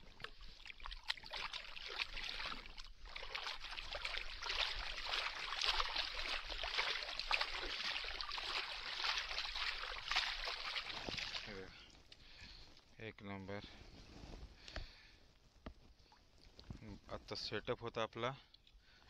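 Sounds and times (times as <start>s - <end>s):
fish splashing in shallow water: 0.0s - 12.6s.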